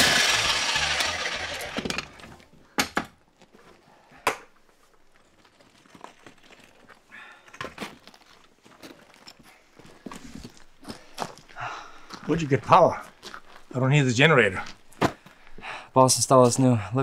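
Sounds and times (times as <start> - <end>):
electric demolition hammer: 0.0 - 2.3
crunching on gravel: 7.8 - 13.7.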